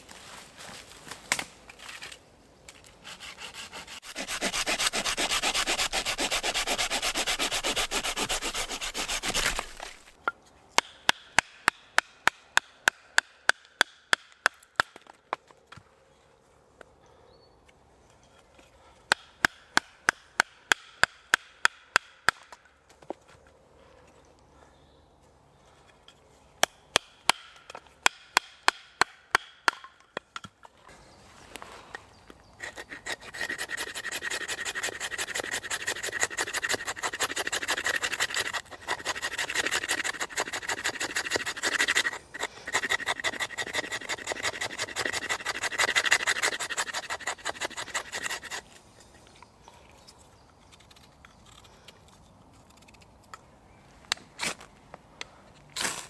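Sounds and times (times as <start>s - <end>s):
knife scraping wood: 3.0s - 10.2s, 32.6s - 49.3s.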